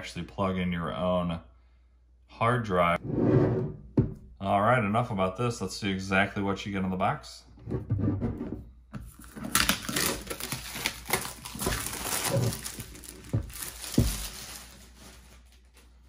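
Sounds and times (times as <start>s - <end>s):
dull thumps: 3.6s - 4.3s
plastic wrap crinkling and tearing: 9.1s - 16.0s.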